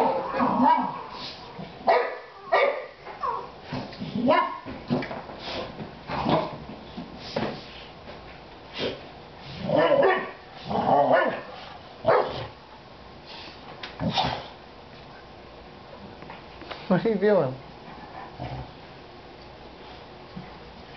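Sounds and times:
dog barking: 0:00.0 - 0:01.0, 0:01.8 - 0:03.5, 0:04.2 - 0:04.6, 0:09.7 - 0:10.4, 0:11.1 - 0:12.5.

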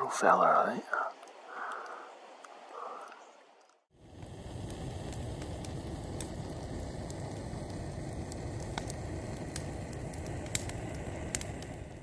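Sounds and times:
campfire crackling and popping: 0:00.7 - 0:12.0
gas camp stoves roaring: 0:03.9 - 0:12.0.

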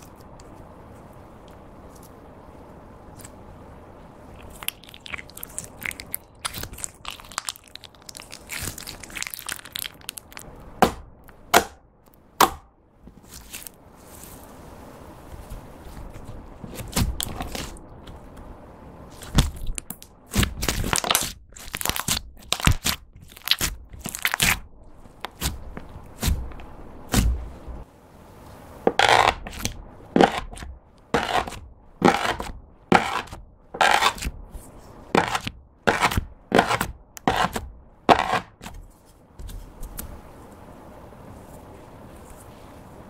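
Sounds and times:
hands squishing sticky slime: 0:04.4 - 0:10.4, 0:19.1 - 0:26.5
knife cutting into slime: 0:29.0 - 0:34.3, 0:35.2 - 0:38.8.

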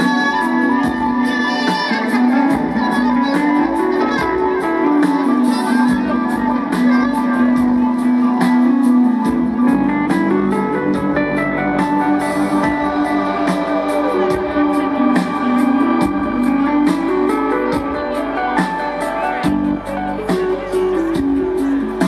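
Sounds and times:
live rock band playing: 0:00.0 - 0:22.0.

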